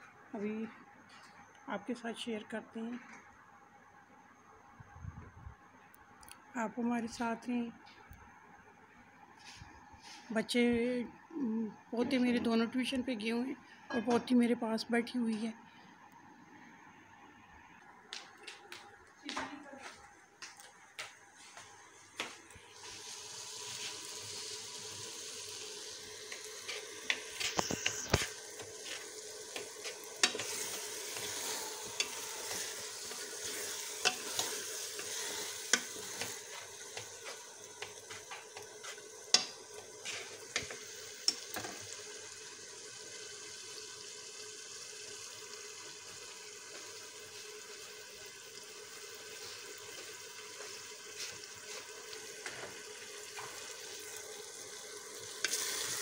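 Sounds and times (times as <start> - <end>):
lentils sizzling in hot oil: 22.6 - 56.0.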